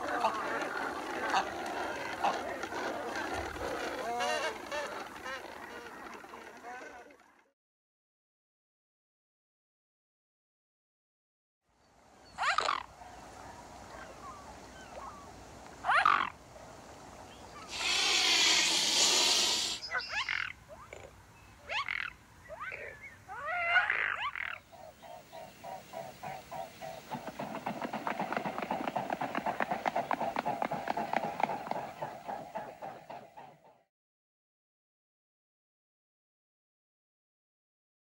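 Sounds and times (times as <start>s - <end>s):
swan harsh calls: 0.0s - 6.8s, 12.3s - 13.0s, 15.8s - 16.4s, 17.6s - 21.1s, 21.7s - 27.5s
swan hiss-like rush: 17.6s - 20.1s.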